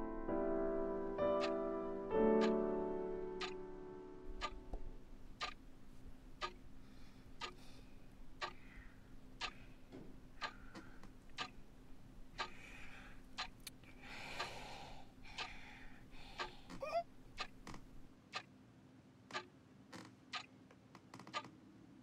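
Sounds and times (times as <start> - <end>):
low steady hum: 0.0 - 18.2
clock ticking: 1.4 - 1.6, 2.2 - 3.6, 4.3 - 5.6, 6.4 - 6.8, 7.4 - 7.7, 8.3 - 12.6, 13.2 - 13.8, 15.3 - 15.7, 16.4 - 18.5.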